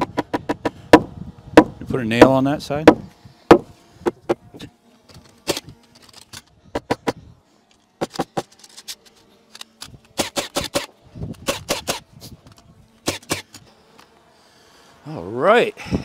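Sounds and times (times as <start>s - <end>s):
hammer driving nails into wood: 0.0s - 4.3s, 8.0s - 8.6s, 10.2s - 12.0s, 13.0s - 13.6s.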